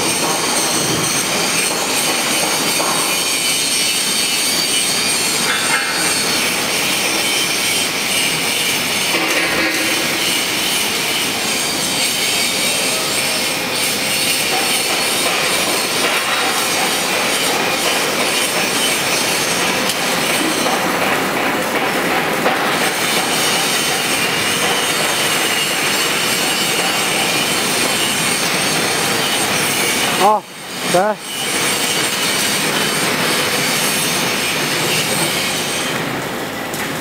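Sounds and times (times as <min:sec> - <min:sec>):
harsh machinery noise: 0:00.0 - 0:37.0.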